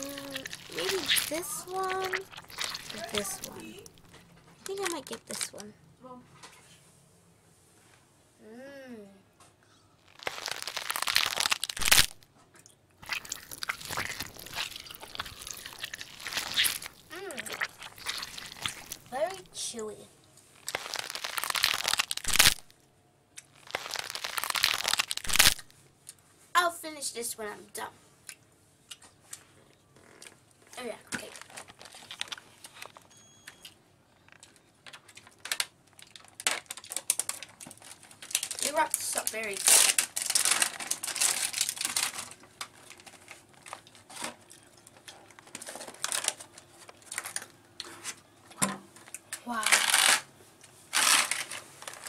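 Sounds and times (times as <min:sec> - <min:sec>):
crunching and chewing candy: 0:00.0 - 0:05.6, 0:10.0 - 0:19.6, 0:20.5 - 0:26.2, 0:31.1 - 0:33.1, 0:34.1 - 0:47.9, 0:50.9 - 0:52.0.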